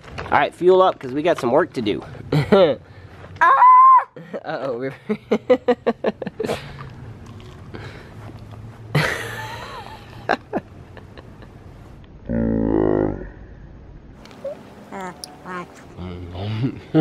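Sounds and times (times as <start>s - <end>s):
wordless voice sounds: 14.4s - 16.4s
man wavering vocal sound: 15.8s - 17.0s.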